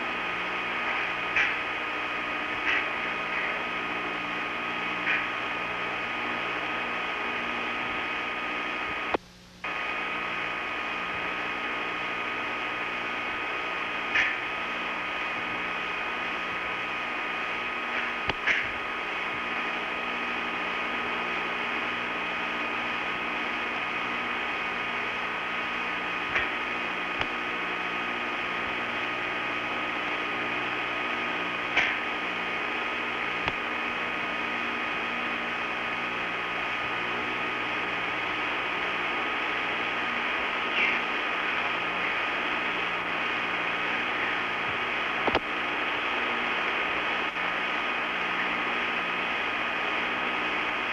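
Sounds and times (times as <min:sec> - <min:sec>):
steady hum and hiss: 0:00.0 - 0:50.9
faint clicks: 0:45.2 - 0:45.5.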